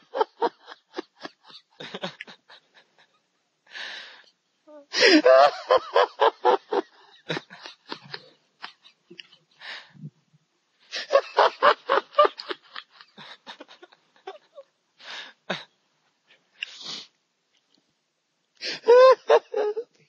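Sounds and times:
men laughing hard: 0:00.0 - 0:03.2, 0:05.0 - 0:09.9, 0:10.9 - 0:14.7, 0:18.6 - 0:19.9
wheezing gasps for air: 0:16.6 - 0:17.2.

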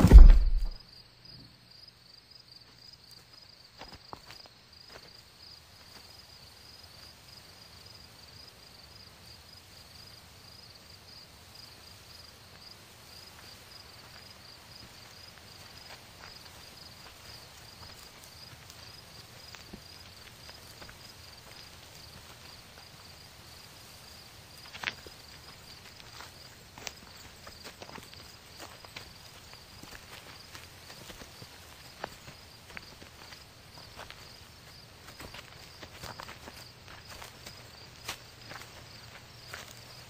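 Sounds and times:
sharp knock: 0:00.0 - 0:00.8
crickets chirping: 0:00.4 - 0:40.0.

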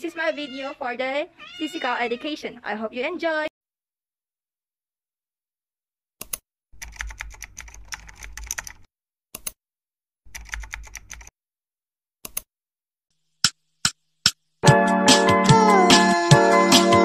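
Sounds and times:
keyboard typing: 0:06.2 - 0:09.6, 0:10.3 - 0:11.3.

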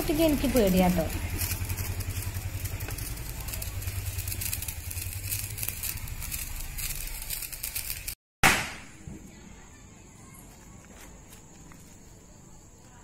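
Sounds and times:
sparkler fizzing and crackling: 0:00.0 - 0:08.8.

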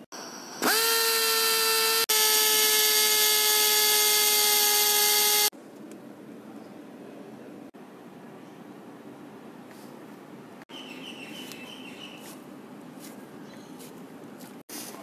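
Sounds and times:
power drill whining: 0:00.2 - 0:05.5.

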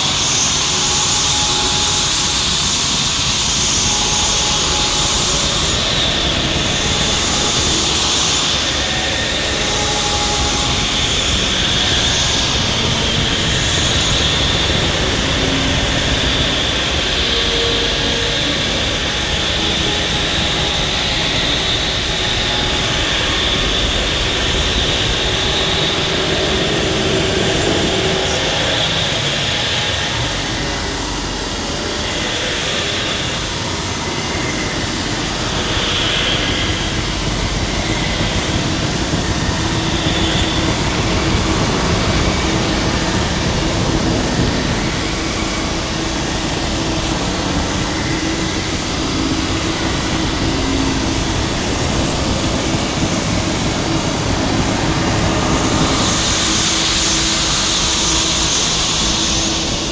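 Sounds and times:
noise music roar: 0:00.0 - 0:59.9.

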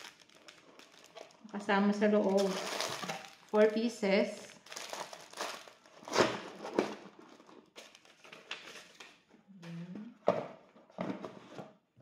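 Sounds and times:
plastic packaging rustling: 0:00.0 - 0:09.3.

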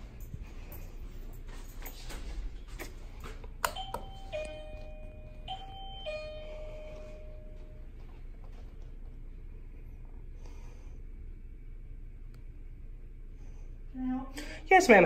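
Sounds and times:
doorbell button click: 0:03.6 - 0:07.8
two-note doorbell chime: 0:03.7 - 0:07.9.

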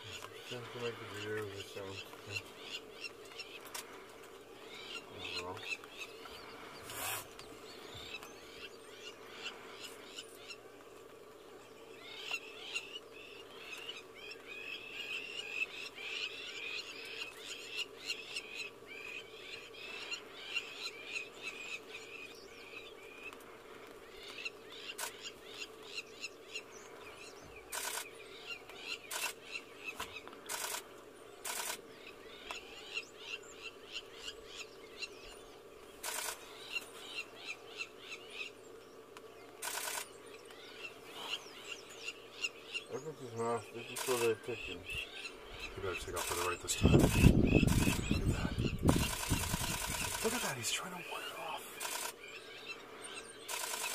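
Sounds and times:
lapwing alarm calls: 0:00.0 - 0:53.9
camera shutter clicks: 0:27.7 - 0:28.1, 0:29.1 - 0:29.4, 0:30.5 - 0:30.8, 0:31.4 - 0:31.8, 0:36.0 - 0:36.4, 0:39.6 - 0:40.1, 0:44.0 - 0:44.3, 0:46.2 - 0:48.2, 0:48.9 - 0:50.4, 0:51.8 - 0:52.2, 0:53.5 - 0:53.9.

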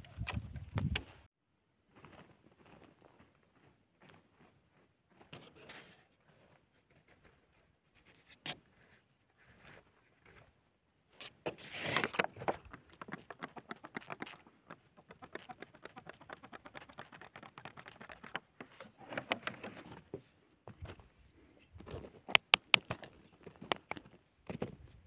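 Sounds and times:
clay soil crackling: 0:11.3 - 0:19.8, 0:20.6 - 0:25.0.

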